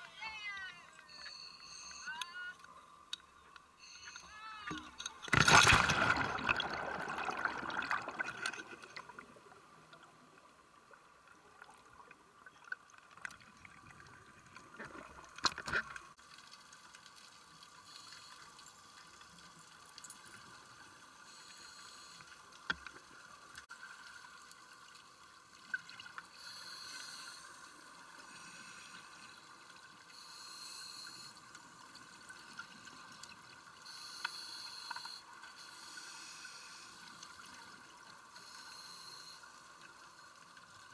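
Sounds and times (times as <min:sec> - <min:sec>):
rush of bubbles: 0:05.2 - 0:09.7
regulator exhaust bubbles gurgling: 0:05.4 - 0:09.2.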